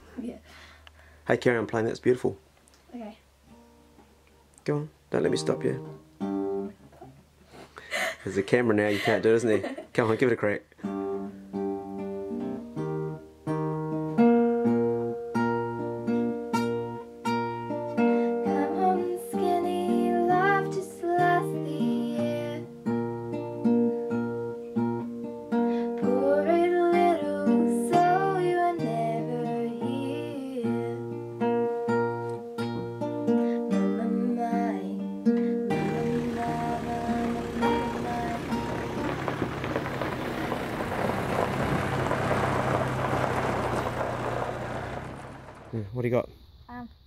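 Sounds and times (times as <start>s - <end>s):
classical guitar playing: 3.4s - 4.2s, 5.2s - 7.2s, 10.8s - 43.7s
girl singing: 18.4s - 22.8s, 26.0s - 31.2s, 33.7s - 38.8s.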